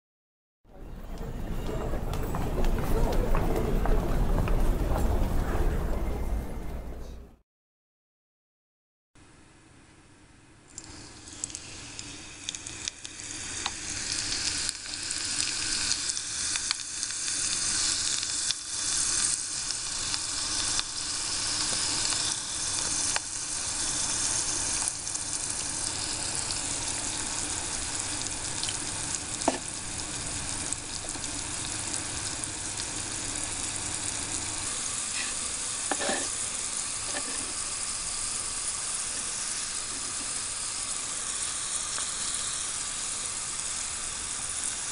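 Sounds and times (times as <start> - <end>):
potatoes sizzling in hot oil: 10.7 - 44.9.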